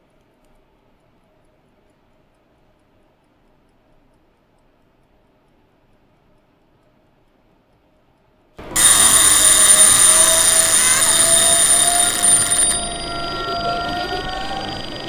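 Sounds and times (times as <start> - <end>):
shimmering magical sound effect: 8.8 - 15.0.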